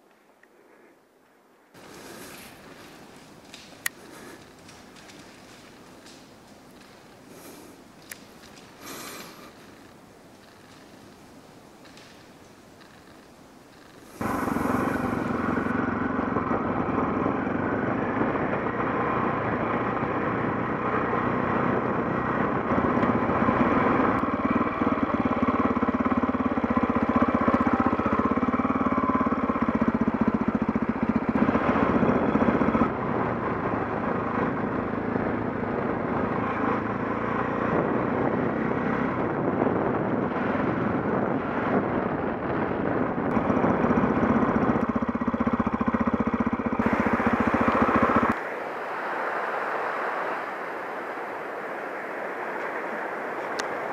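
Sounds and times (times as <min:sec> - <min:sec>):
motorcycle engine running: 0:11.8 - 0:48.6.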